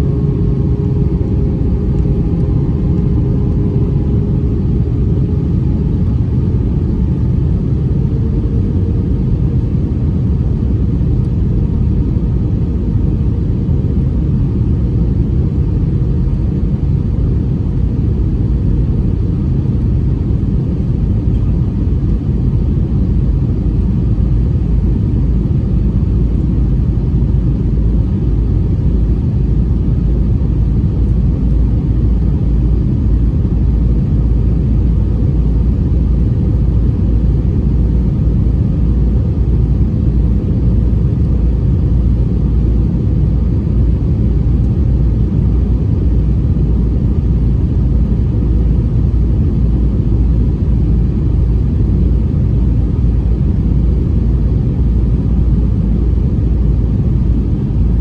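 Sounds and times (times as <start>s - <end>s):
airliner cabin engine rumble: 0.0s - 58.0s.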